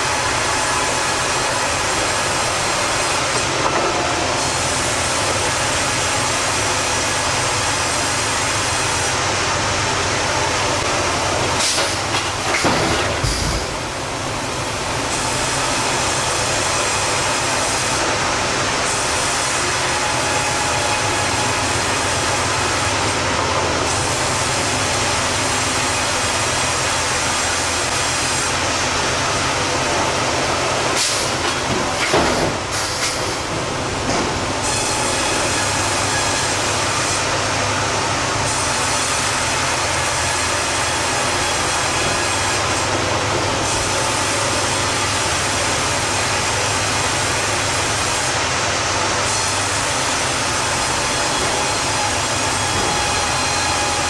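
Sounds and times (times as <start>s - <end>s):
sawmill machinery rumble and hiss: 0.0s - 54.0s
knocks and clanks: 11.7s - 13.8s, 31.4s - 34.4s.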